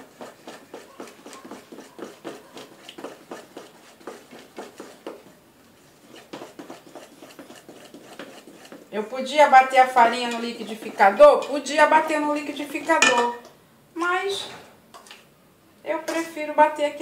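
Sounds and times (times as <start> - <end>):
spatula stirring batter in steel bowl: 0.0 - 13.0.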